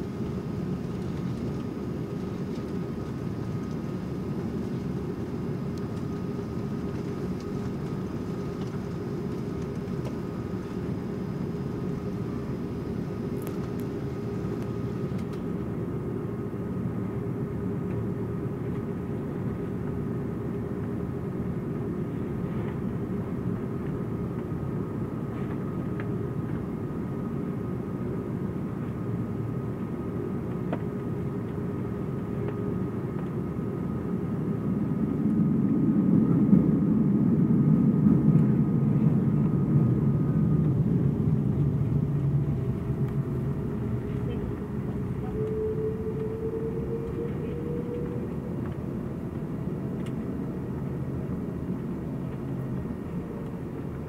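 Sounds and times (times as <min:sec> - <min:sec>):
faint thin engine whine: 0:00.0 - 0:54.0
jet engines rumbling in cabin: 0:00.0 - 0:54.0.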